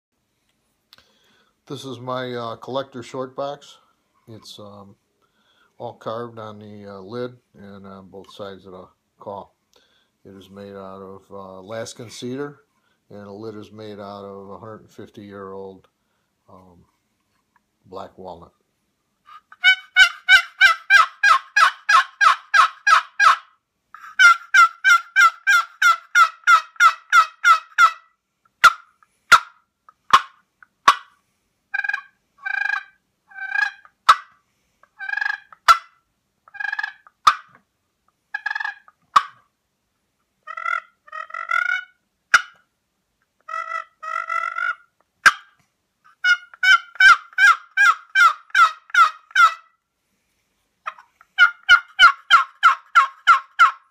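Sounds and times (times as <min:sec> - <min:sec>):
turkey box call yelps and clucks: 0:19.3 - 0:37.6, 0:38.3 - 0:39.4, 0:40.4 - 0:42.6, 0:43.4 - 0:49.8, 0:50.8 - 0:53.9.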